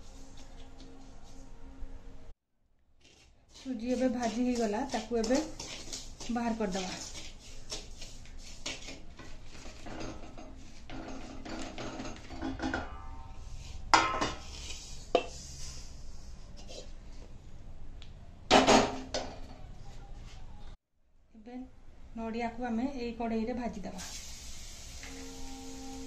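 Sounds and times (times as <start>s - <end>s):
metal spatula scraping pan: 3.0s - 16.9s.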